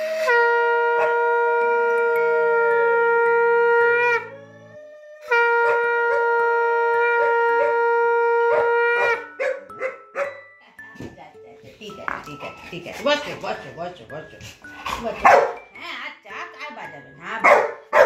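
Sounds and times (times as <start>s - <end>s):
conch shell blasts: 0.0s - 4.3s, 5.2s - 9.2s.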